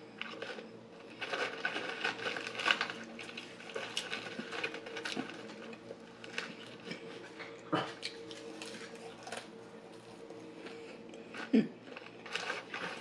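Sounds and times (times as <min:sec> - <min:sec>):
chewing: 0:00.2 - 0:13.0
fries rustling in cardboard carton: 0:00.3 - 0:07.4, 0:11.9 - 0:13.0.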